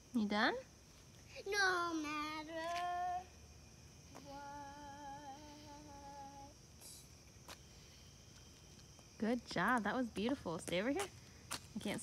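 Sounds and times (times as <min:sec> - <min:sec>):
girl singing a long note: 0:02.2 - 0:03.4, 0:04.2 - 0:06.6.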